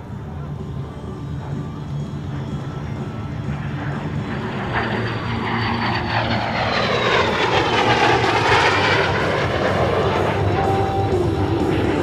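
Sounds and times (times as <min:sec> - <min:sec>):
jet plane flying past: 0:00.0 - 0:12.0.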